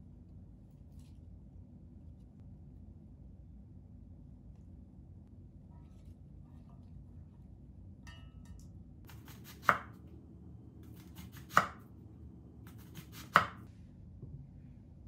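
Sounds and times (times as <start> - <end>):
knife cutting through onion: 9.1 - 10.0, 10.8 - 11.8, 12.7 - 13.7.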